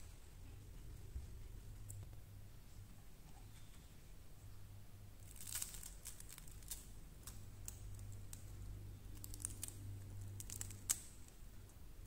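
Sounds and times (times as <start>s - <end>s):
crispy potato pancake crunching: 5.2s - 11.4s.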